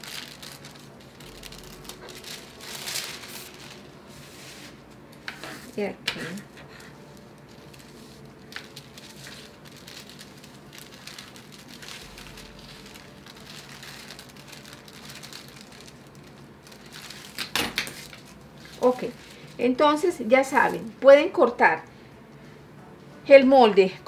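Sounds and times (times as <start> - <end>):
paper rustling and crinkling: 0.0 - 19.6.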